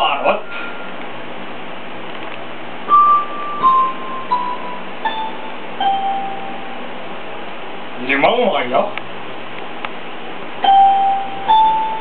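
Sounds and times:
steady background hiss: 0.0s - 12.0s.

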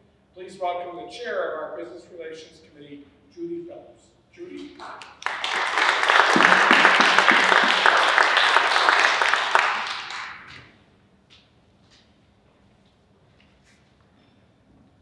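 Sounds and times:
audience applauding: 4.6s - 10.6s.

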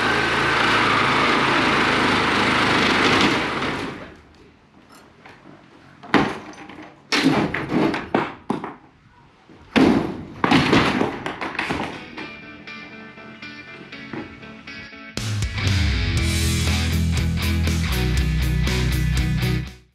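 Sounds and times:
power tool running: 0.0s - 4.1s
metal bangs and clatters: 9.7s - 12.4s.

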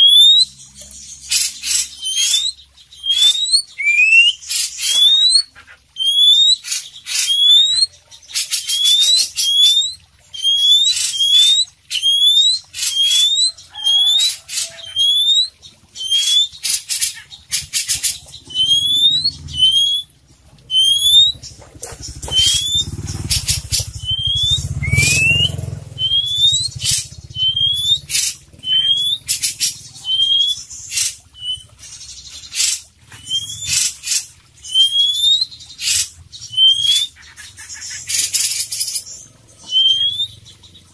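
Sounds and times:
bird singing whistled notes: 0.0s - 0.6s, 1.3s - 7.9s, 8.5s - 16.6s, 18.4s - 30.8s, 34.6s - 37.1s, 38.5s - 40.5s
low rumble: 18.3s - 27.9s.

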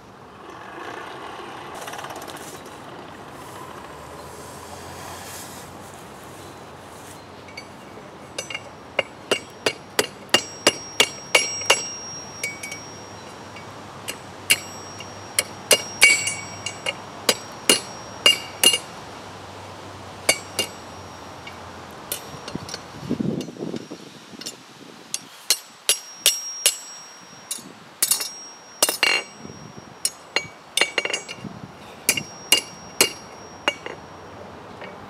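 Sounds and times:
hammer striking steel on anvil: 8.4s - 18.9s, 20.3s - 23.6s, 25.2s - 31.4s, 32.0s - 34.2s.

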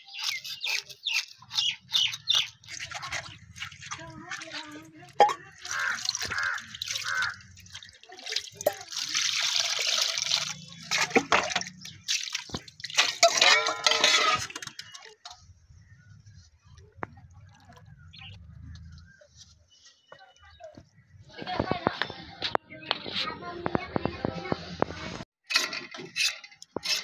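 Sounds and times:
water splashing and dripping: 0.2s - 15.4s.

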